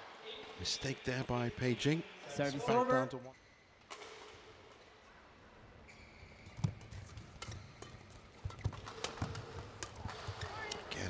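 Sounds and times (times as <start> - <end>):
indoor arena hum: 0.0 - 11.0
rackets hitting shuttlecock: 6.4 - 10.9.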